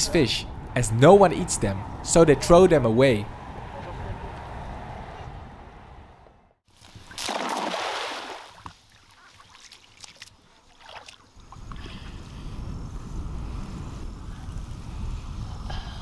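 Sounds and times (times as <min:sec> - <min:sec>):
water splashing: 0:06.9 - 0:11.6
wind rumble on microphone: 0:11.4 - 0:16.0.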